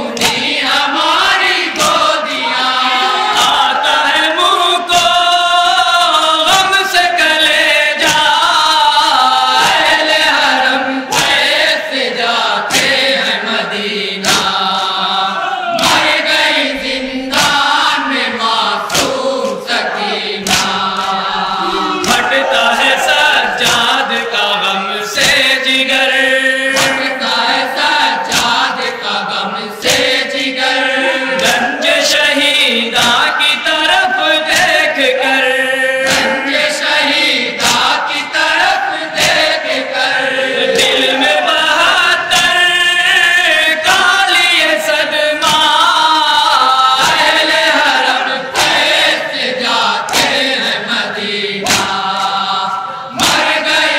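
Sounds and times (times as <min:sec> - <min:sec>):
men chanting a lament: 0:00.0 - 0:53.9
hands slapping chests: 0:00.1 - 0:02.4, 0:03.4 - 0:03.7, 0:04.9 - 0:05.3, 0:08.0 - 0:08.4, 0:09.5 - 0:10.5, 0:11.1 - 0:11.8, 0:12.6 - 0:13.4, 0:14.2 - 0:16.6, 0:17.3 - 0:21.3, 0:22.0 - 0:24.1, 0:25.1 - 0:25.6, 0:26.7 - 0:28.9, 0:29.8 - 0:30.3, 0:31.4 - 0:31.8, 0:33.0 - 0:33.4, 0:34.4 - 0:34.9, 0:36.0 - 0:39.8, 0:40.7 - 0:41.4, 0:42.3 - 0:42.6, 0:45.4 - 0:45.8, 0:46.7 - 0:53.9.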